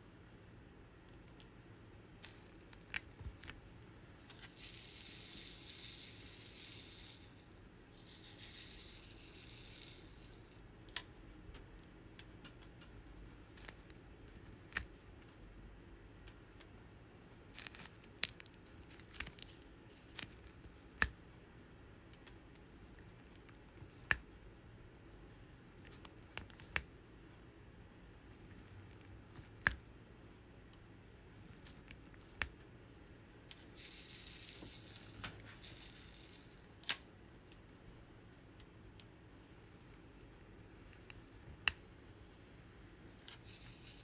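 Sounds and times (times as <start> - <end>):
high rustling noise: 4.2 - 10.6, 33.6 - 36.9, 42.6 - 44.0.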